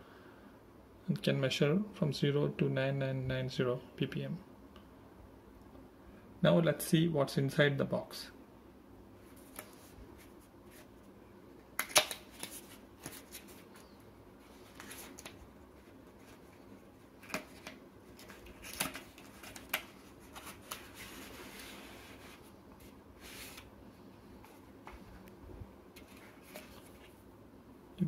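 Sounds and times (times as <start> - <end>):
card sliding rustles: 9.3 - 10.9, 11.8 - 23.7, 26.0 - 27.2.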